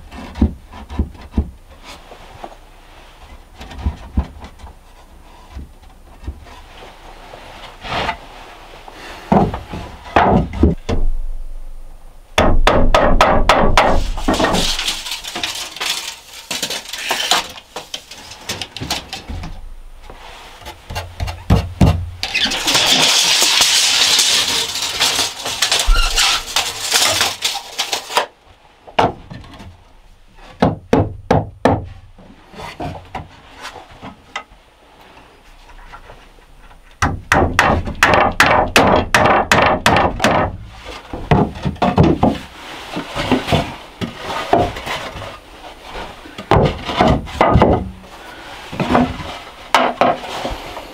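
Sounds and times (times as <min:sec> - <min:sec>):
knocks on wood: 0:12.4 - 0:14.6, 0:20.9 - 0:22.1, 0:30.6 - 0:31.9.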